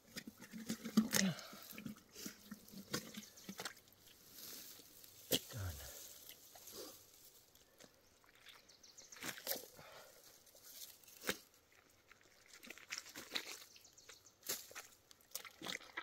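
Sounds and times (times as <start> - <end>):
wet tearing and crackling: 12.1 - 13.7.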